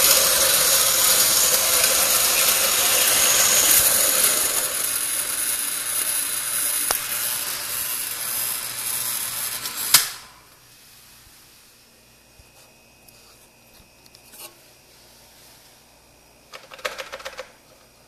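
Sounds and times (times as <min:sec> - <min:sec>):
coffee grinder whirring: 0:00.0 - 0:10.4
grinder click: 0:00.1 - 0:08.3.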